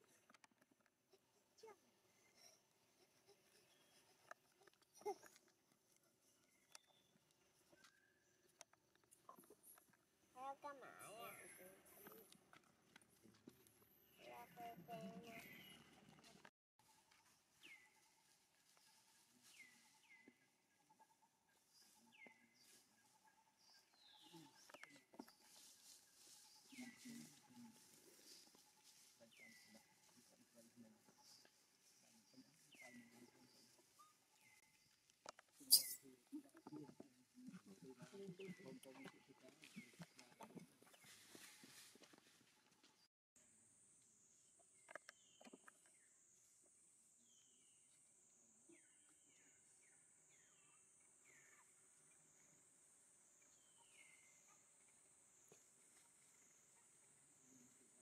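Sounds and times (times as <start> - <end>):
bird chirping: 14.0 - 35.0, 35.6 - 41.8
soft high chirps: 35.6 - 36.1.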